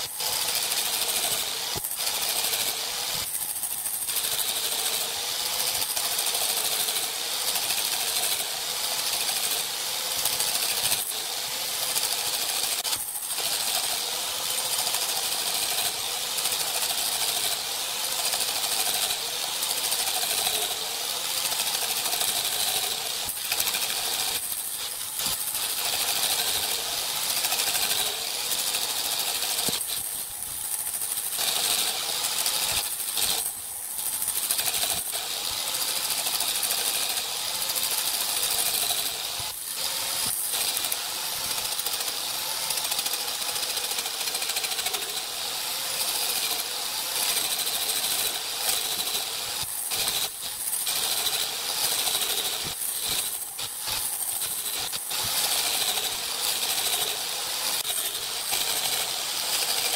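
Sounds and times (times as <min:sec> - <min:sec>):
wood lathe running: 0:00.0 - 0:59.9.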